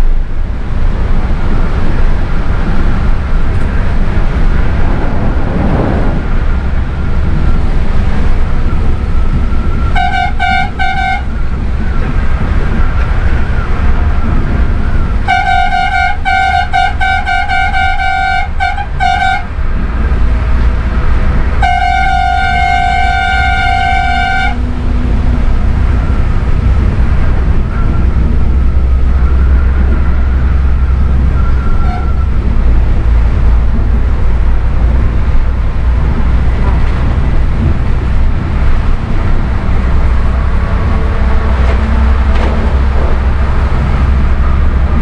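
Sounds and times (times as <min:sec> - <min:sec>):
bus rumbling along: 0:00.0 - 0:45.0
vehicle horn tooting: 0:09.9 - 0:11.4, 0:15.2 - 0:19.5, 0:21.6 - 0:24.6, 0:31.4 - 0:32.3.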